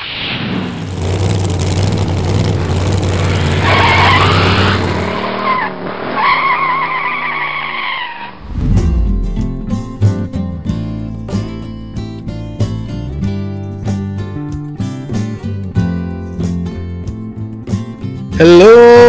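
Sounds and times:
car engine running hard: 0:00.8 - 0:06.2
guitar music: 0:08.4 - 0:18.4.

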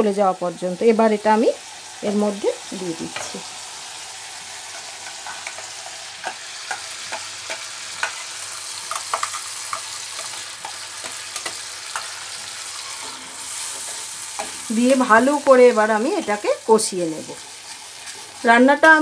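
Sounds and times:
paste sizzling in oil: 0:00.5 - 0:19.0
metal spatula scraping: 0:04.6 - 0:15.2, 0:17.4 - 0:18.4.

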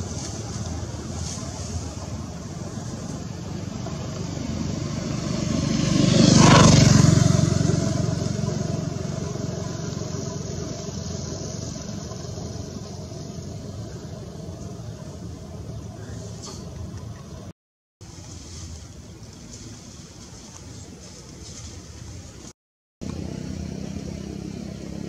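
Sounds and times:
vehicle passing by: 0:00.0 - 0:16.8, 0:21.0 - 0:25.0.

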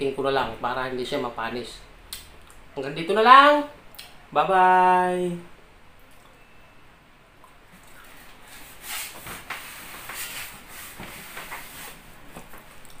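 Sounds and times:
person moving about rustling: 0:07.7 - 0:13.0.

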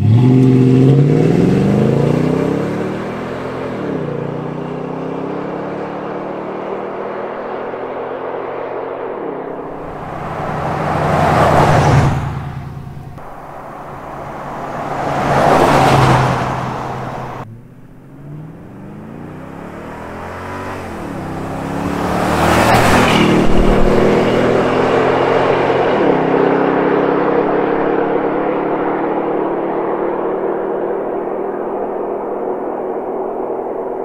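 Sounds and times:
truck exhaust driving by: 0:09.0 - 0:33.9.

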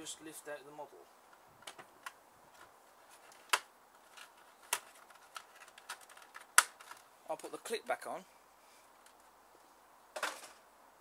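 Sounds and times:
plastic packaging crackling: 0:03.2 - 0:07.7
sharp plastic clicks: 0:03.3 - 0:07.0.

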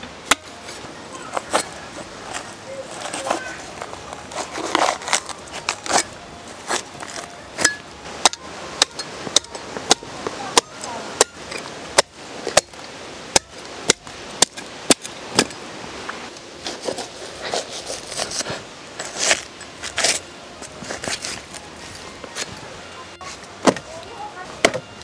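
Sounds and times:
rough cutting sounds: 0:00.3 - 0:12.8, 0:16.6 - 0:22.5.

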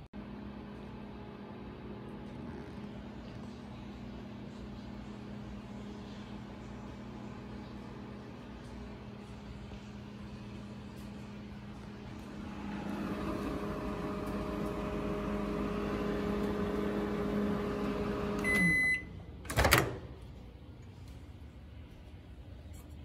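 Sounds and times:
microwave oven humming: 0:00.0 - 0:23.0
microwave beep: 0:13.0 - 0:19.3.

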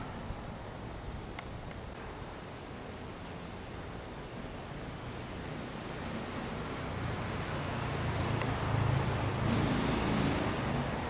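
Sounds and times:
outdoor background hiss: 0:00.0 - 0:11.0
vehicle engine hum: 0:04.2 - 0:11.0.

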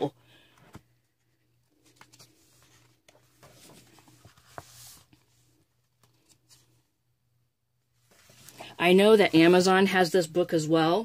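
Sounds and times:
paper rustling: 0:01.6 - 0:06.8, 0:08.0 - 0:09.7
page swishing: 0:01.8 - 0:06.7.

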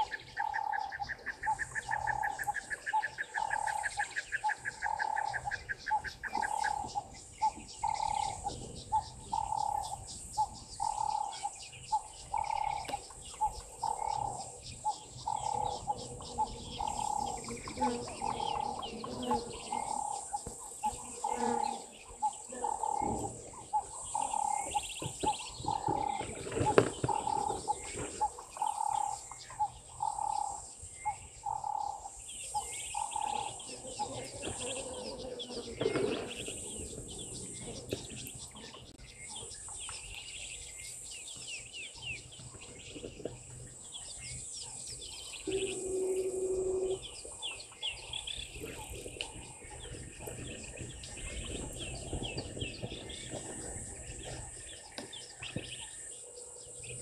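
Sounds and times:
high insect drone: 0:00.0 - 0:37.7, 0:43.8 - 0:51.0
small birds chirping: 0:00.0 - 0:57.0.

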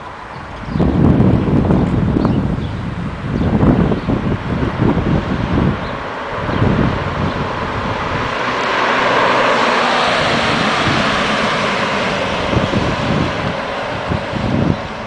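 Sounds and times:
sports car engine roaring past: 0:00.0 - 0:15.0
wind buffeting microphone: 0:00.0 - 0:15.0.

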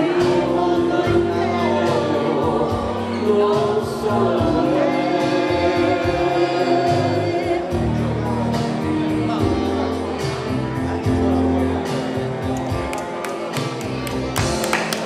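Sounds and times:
man singing a slow ballad: 0:00.0 - 0:10.3
instrumental backing chords: 0:00.0 - 0:15.0.

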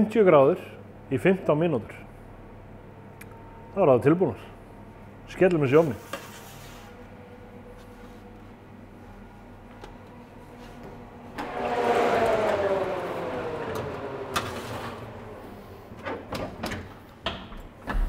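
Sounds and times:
oven fan whine and air rush: 0:00.0 - 0:18.0
oven door shutting: 0:15.9 - 0:18.0.

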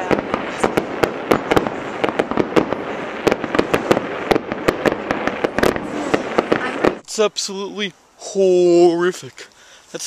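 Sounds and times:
fireworks cracking and popping: 0:00.0 - 0:07.2
steady hiss: 0:00.0 - 0:10.0.

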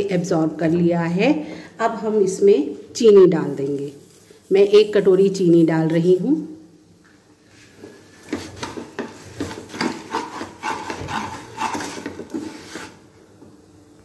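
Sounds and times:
wooden spatula scraping pan: 0:07.5 - 0:13.0.

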